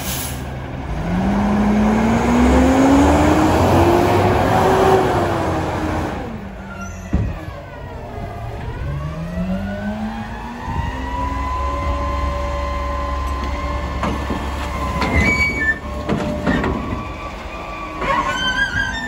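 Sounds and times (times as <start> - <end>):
garbage truck engine revving: 0.4 - 19.0
trash cart knocking and clattering: 13.4 - 17.2.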